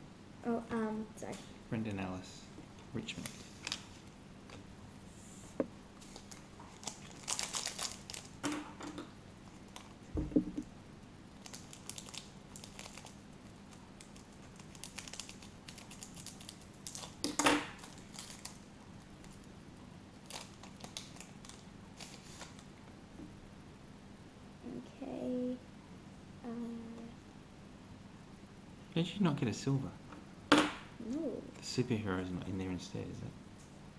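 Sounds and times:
foil wrapper crinkling: 0:06.0 - 0:08.4, 0:11.4 - 0:19.5, 0:20.2 - 0:22.7
thump on table: 0:10.2 - 0:10.6.

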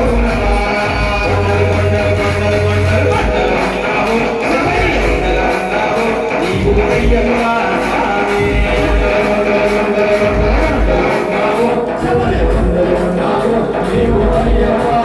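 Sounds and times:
audience clapping along: 0:00.0 - 0:11.7
man singing through microphone: 0:00.0 - 0:15.0
music with deep beat: 0:00.0 - 0:15.0.

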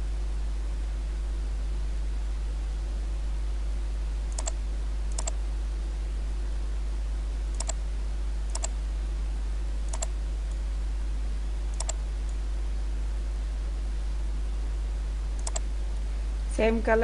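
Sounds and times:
low electrical hum: 0:00.0 - 0:17.0
computer mouse clicking: 0:04.3 - 0:05.4, 0:07.5 - 0:07.8, 0:08.5 - 0:08.8, 0:09.9 - 0:10.6, 0:11.7 - 0:12.4, 0:15.4 - 0:15.7.

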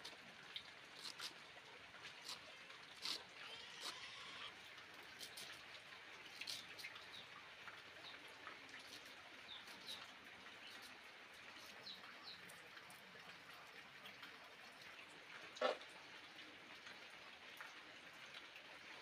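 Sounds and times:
knife snipping cabbage: 0:00.9 - 0:01.4, 0:02.1 - 0:04.0, 0:06.3 - 0:07.0.

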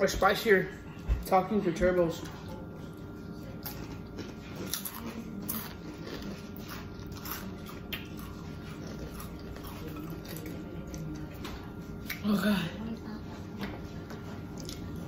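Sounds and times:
chips crunching: 0:03.6 - 0:11.2.

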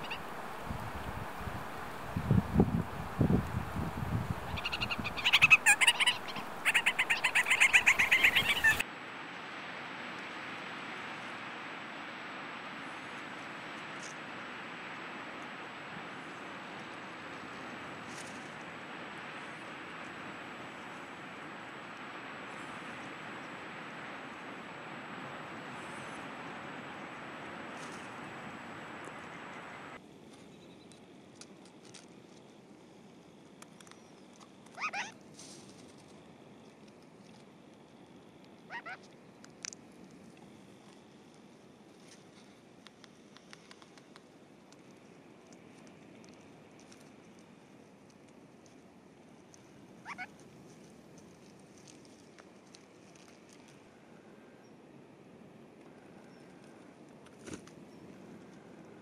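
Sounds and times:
parakeet rapid chattering call: 0:00.0 - 0:00.4, 0:04.4 - 0:08.8, 0:50.0 - 0:50.3
rushing background noise: 0:00.0 - 0:30.0.

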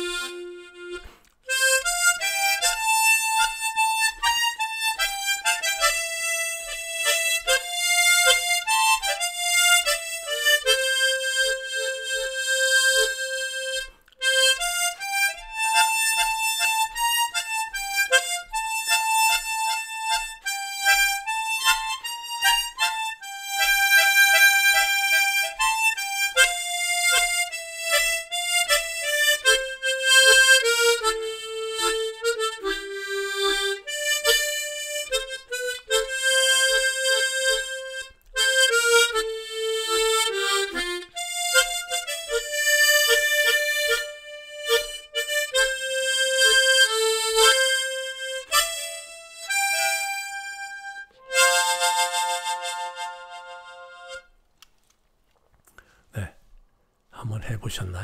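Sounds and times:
harmonica melody: 0:00.0 - 0:54.4.

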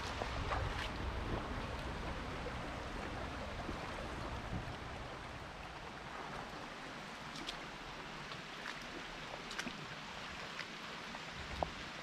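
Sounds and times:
low rumble: 0:00.0 - 0:06.5
stream water running over stones: 0:00.0 - 0:12.0.

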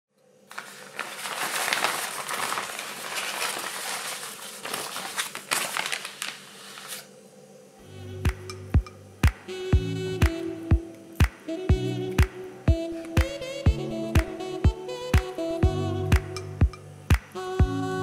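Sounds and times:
paper crinkling: 0:00.5 - 0:07.1
background music with a beat: 0:08.0 - 0:18.0.

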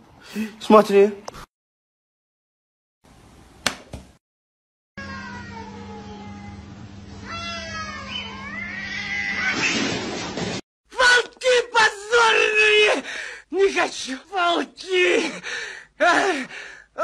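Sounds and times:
cat yowling: 0:07.2 - 0:09.7.

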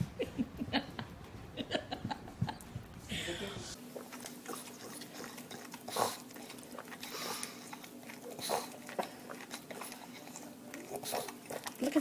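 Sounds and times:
dog sucking on feeding bottle: 0:03.8 - 0:12.0
wet slurps: 0:03.9 - 0:12.0.

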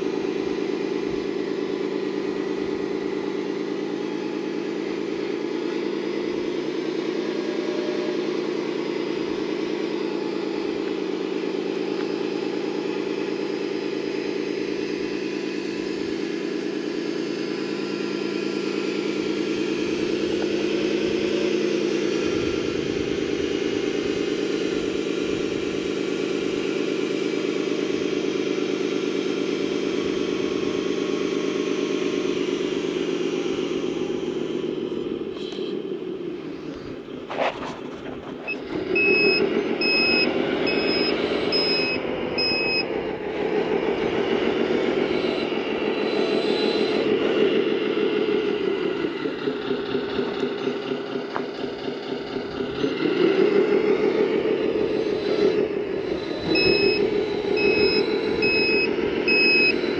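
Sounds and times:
excavator mechanical drone: 0:00.0 - 0:59.9
reversing alarm beeping: 0:38.4 - 0:48.6, 0:53.2 - 0:59.9.

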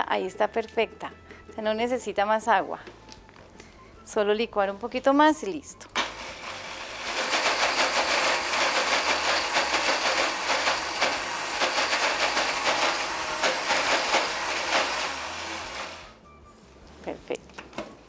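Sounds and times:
blender running: 0:06.0 - 0:16.2.

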